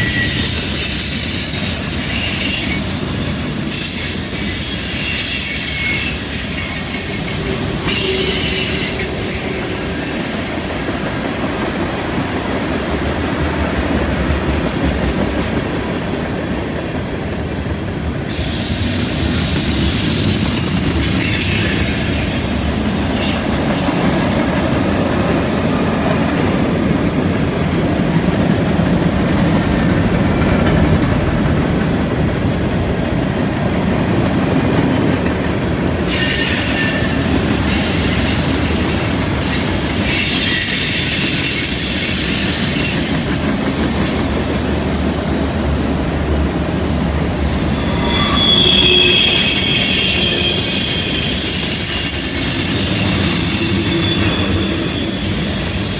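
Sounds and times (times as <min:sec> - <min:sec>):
high-pitched wheel squeal: 0:00.0 - 0:09.7, 0:18.3 - 0:24.5, 0:36.1 - 0:43.4, 0:47.4 - 0:55.9
steel wheels rumbling on rail: 0:00.0 - 0:55.9.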